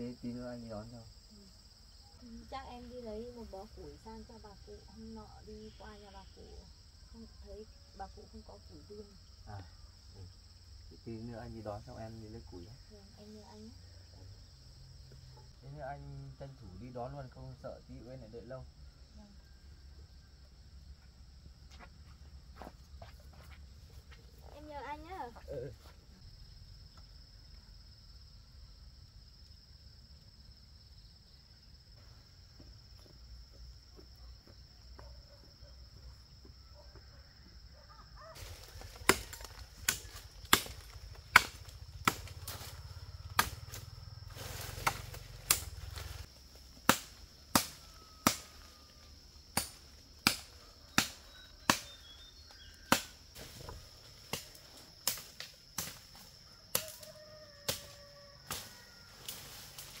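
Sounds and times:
high insect buzz: 0.0s - 36.5s, 37.1s - 60.0s
wood being chopped: 38.8s - 42.7s, 43.3s - 43.8s, 44.8s - 45.8s, 46.8s - 48.6s, 49.5s - 52.0s, 52.9s - 56.1s, 56.7s - 57.0s.

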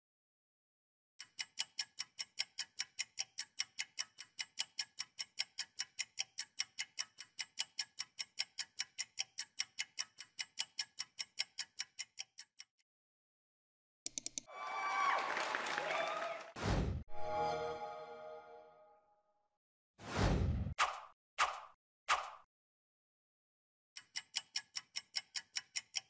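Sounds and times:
fast clock ticks: 1.2s - 12.8s, 14.1s - 14.5s, 24.0s - 26.0s.

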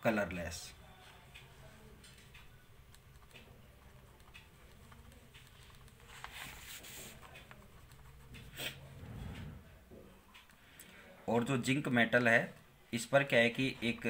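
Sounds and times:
pen scratching on paper: 3.0s - 9.6s.

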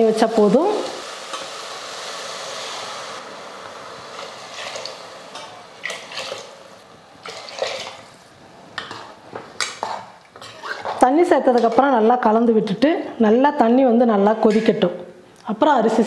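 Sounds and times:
ladle scraping and knocking pot: 8.8s - 11.9s.

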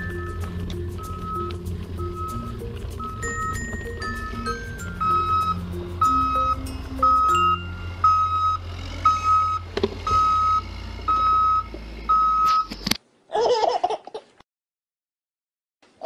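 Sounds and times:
low rumble: 0.0s - 12.2s
truck reversing alarm beeping: 0.0s - 12.7s.

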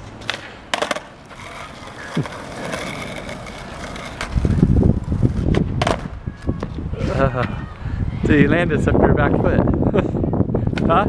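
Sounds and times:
skateboard clacking on street: 0.0s - 6.8s
skateboard wheels rolling on asphalt: 0.0s - 11.0s.

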